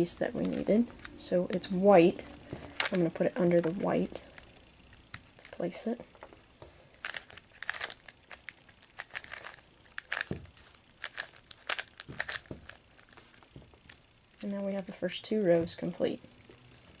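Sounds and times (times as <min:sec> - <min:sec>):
puzzle cube twisting clicks: 0:07.0 - 0:14.0.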